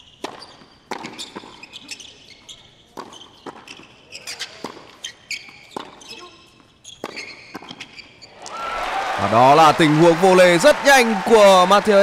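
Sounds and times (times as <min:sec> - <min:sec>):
shoes squeaking on court: 0:00.0 - 0:08.4
racquet hitting tennis ball: 0:00.2 - 0:01.5, 0:02.9 - 0:05.0
tennis ball bouncing: 0:00.2 - 0:01.6, 0:02.9 - 0:08.0.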